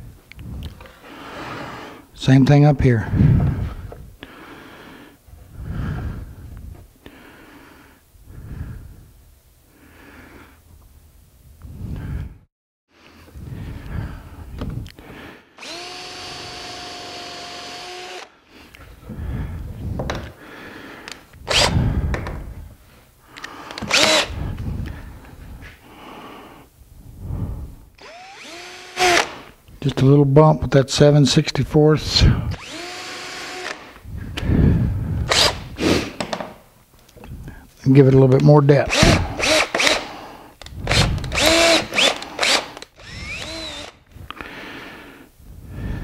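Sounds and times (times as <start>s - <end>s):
man breathing noisily: 0.3s - 2.2s, 3.0s - 10.7s, 11.6s - 29.6s, 33.6s - 36.2s, 37.2s - 37.8s, 38.9s - 46.0s
cordless drill boring into wood: 15.6s - 18.3s, 21.5s - 21.8s, 23.8s - 24.4s, 28.0s - 29.5s, 32.5s - 34.0s, 35.3s - 35.7s, 38.9s - 40.2s, 40.8s - 44.1s.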